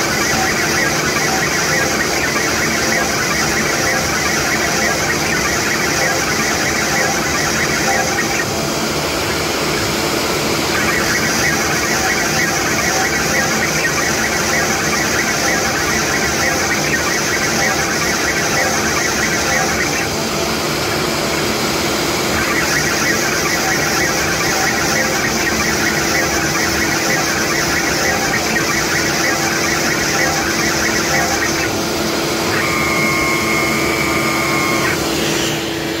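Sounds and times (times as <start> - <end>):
drill bit boring wood: 0.0 - 36.0
router spindle whine: 0.0 - 36.0
steady high whine: 0.0 - 36.0.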